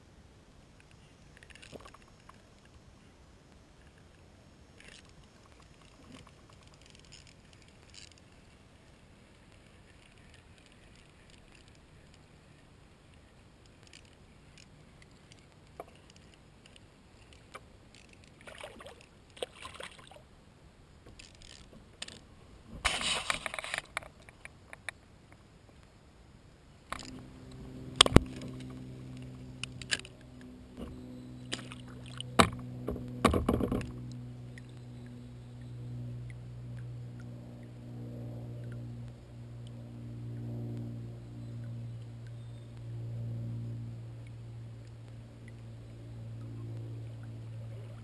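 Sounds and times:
knocks and clicks on a kayak: 0:32.3 - 0:34.1.

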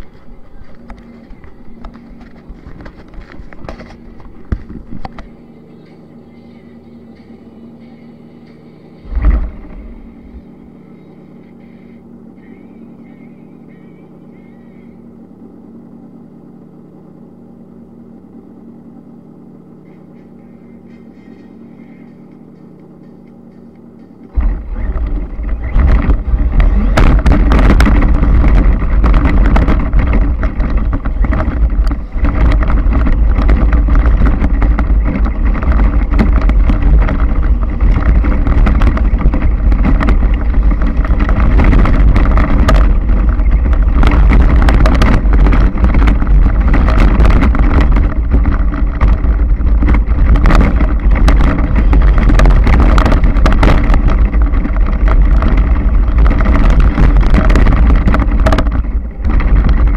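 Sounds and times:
quiet steady hum: 0:00.0 - 0:59.9
wind on microphone: 0:09.0 - 0:10.7, 0:24.3 - 0:59.9
toy car rumbling over rough ground: 0:24.3 - 0:59.9.

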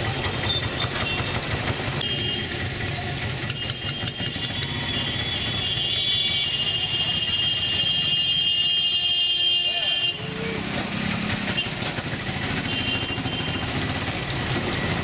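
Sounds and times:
auto-rickshaw engine running: 0:00.0 - 0:15.0
street traffic with motorcycles: 0:00.0 - 0:15.0.

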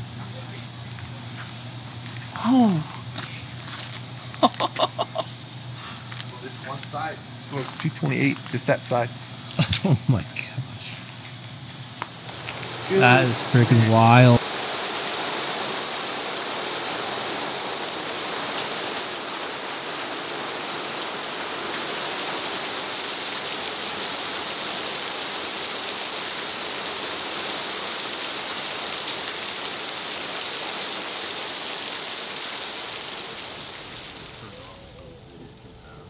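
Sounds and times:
heavy rain: 0:02.3 - 0:05.4, 0:12.1 - 0:35.8
water splashing onto wet ground: 0:12.1 - 0:34.9.

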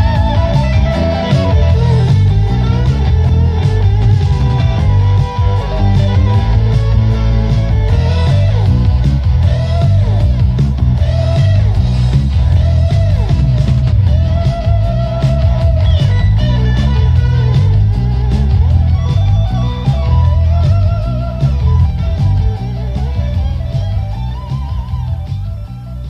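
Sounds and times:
rock music with electric guitar: 0:00.0 - 0:26.0.

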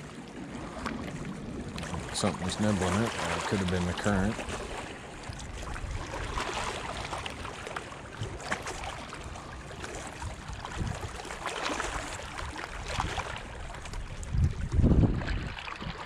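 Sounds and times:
wind rumbling on microphone: 0:00.0 - 0:16.0
waves splashing on rocks: 0:00.6 - 0:04.9.

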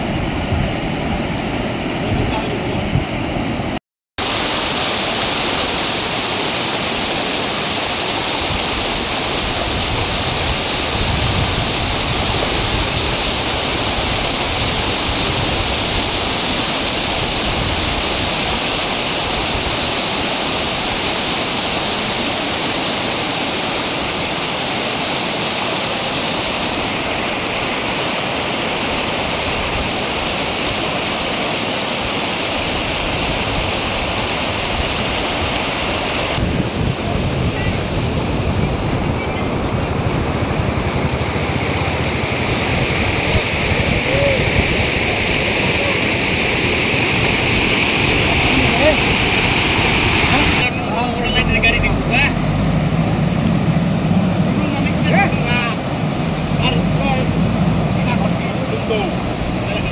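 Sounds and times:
floodwater rushing: 0:00.0 - 0:59.9.

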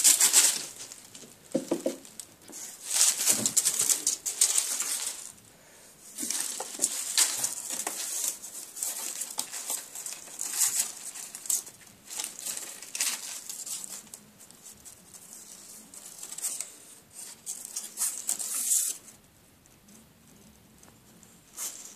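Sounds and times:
dry leaves rustling and crunching: 0:02.8 - 0:05.4, 0:06.2 - 0:14.0.

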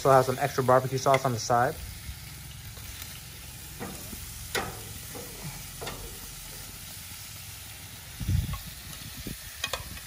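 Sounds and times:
chicken sizzling on grill: 0:00.0 - 0:10.0
metal tongs clinking: 0:03.8 - 0:06.5.

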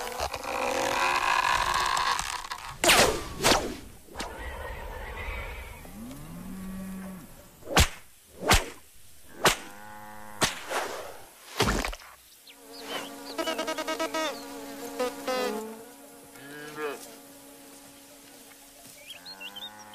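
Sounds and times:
fly buzzing: 0:00.0 - 0:19.9
cartoon whooshes: 0:02.8 - 0:05.7.

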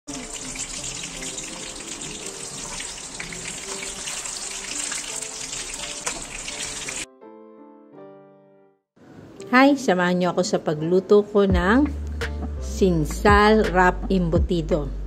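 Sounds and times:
meat frying in hot oil: 0:00.1 - 0:07.1.

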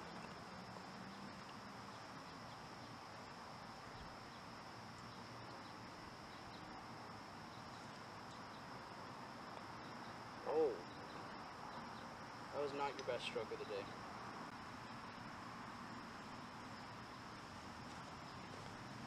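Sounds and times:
insects chirring: 0:00.0 - 0:19.0
faint ticks: 0:04.9 - 0:05.7.

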